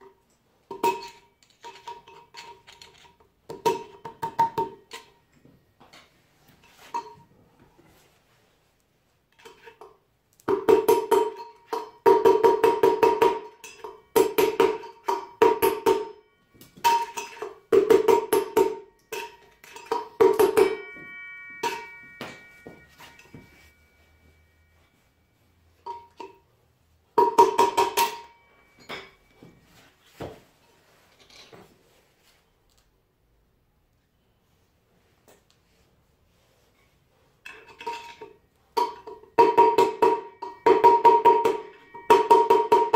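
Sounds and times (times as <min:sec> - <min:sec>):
steel rod tapping metal bearing: 0:27.2 - 0:29.2.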